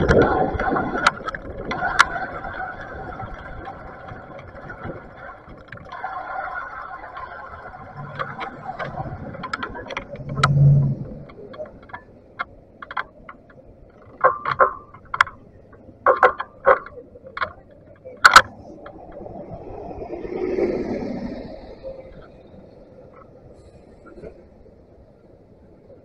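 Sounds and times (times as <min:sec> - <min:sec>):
low engine hum: 0:00.0 - 0:26.0
muffled street traffic: 0:00.0 - 0:26.0
short sharp clicks and knocks: 0:07.9 - 0:19.0.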